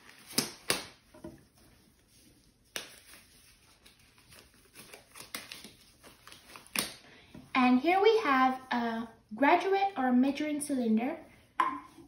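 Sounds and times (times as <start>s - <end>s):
rubber glove snapping: 0.0s - 1.0s, 2.6s - 3.2s, 3.9s - 7.0s.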